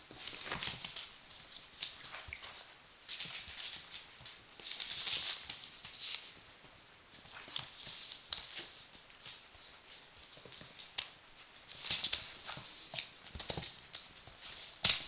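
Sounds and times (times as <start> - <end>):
newspaper rustling and crinkling: 0.0 - 6.4.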